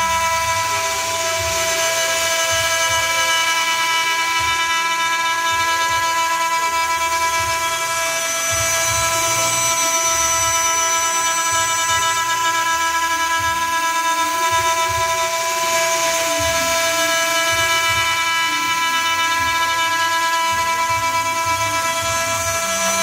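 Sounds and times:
milling machine cutting metal: 0.0s - 23.0s.

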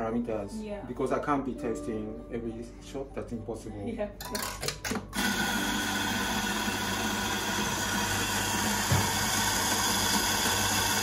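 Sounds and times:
coffee grinder motor: 5.1s - 11.0s.

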